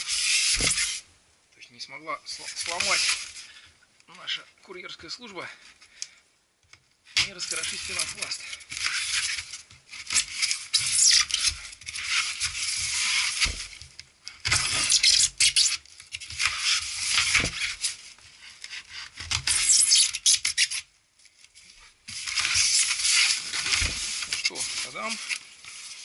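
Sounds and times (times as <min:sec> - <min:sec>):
knife scraping foam box: 0:00.0 - 0:01.0, 0:02.5 - 0:03.4, 0:07.2 - 0:13.8, 0:14.4 - 0:20.9.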